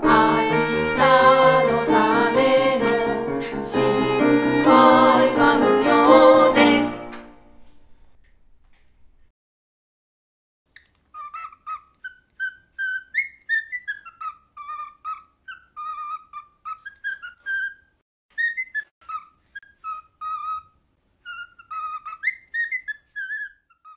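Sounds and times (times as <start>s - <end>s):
cockatiel whistling a tune: 11.2s - 23.9s.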